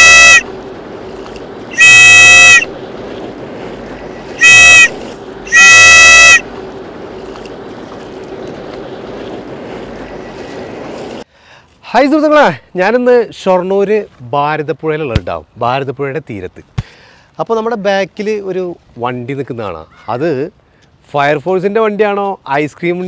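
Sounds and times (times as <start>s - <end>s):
whistle blasts: 0.0s - 0.5s, 1.7s - 2.7s, 4.0s - 6.5s.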